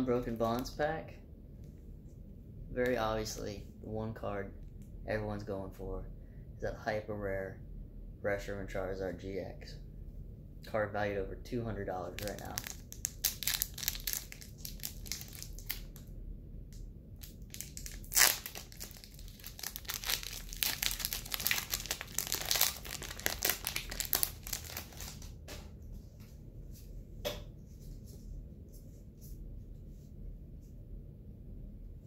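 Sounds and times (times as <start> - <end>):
foil wrapper tearing and crinkling: 12.2 - 16.0, 17.2 - 25.3
loud sharp crackle: 17.2 - 25.2.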